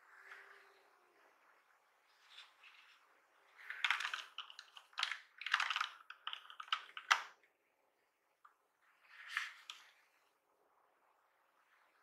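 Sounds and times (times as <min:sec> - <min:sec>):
keyboard keys clicking and clattering: 0:03.8 - 0:07.3.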